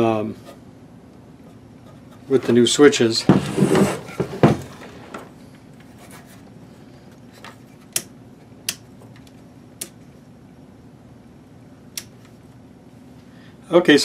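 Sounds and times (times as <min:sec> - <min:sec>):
faint steady hum: 0:00.0 - 0:14.0
short sharp clicks of switches: 0:11.9 - 0:12.2.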